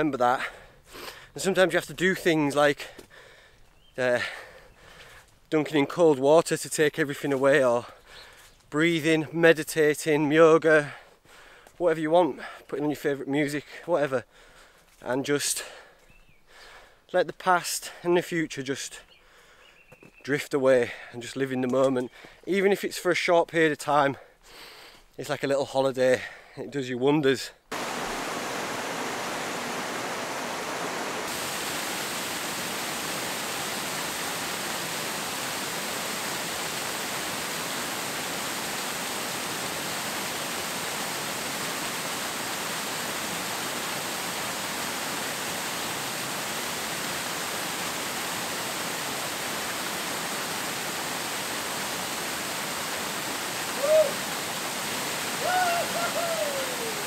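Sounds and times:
waterfall pouring into pool: 27.7s - 57.0s
man crying out: 53.8s - 54.2s, 55.4s - 57.0s.

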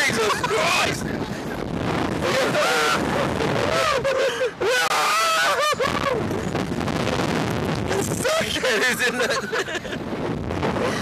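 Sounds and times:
men yelling and laughing: 0.0s - 6.4s, 8.0s - 10.0s
wind rushing across microphone: 0.0s - 11.0s.

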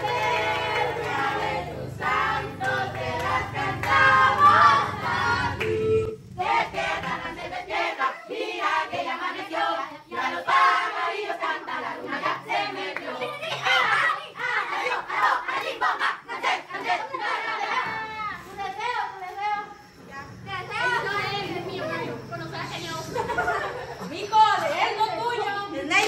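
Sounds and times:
group singing birthday song: 0.0s - 26.0s
hand clapping: 2.6s - 4.6s.

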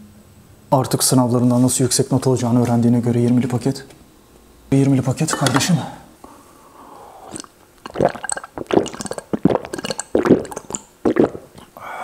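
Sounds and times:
slurping and gulping liquid: 7.2s - 11.8s.

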